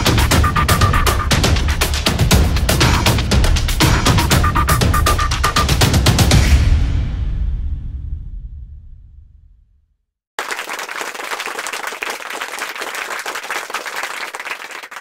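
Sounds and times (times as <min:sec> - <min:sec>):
music: 0:00.0 - 0:09.3
applause and clapping: 0:10.4 - 0:15.0.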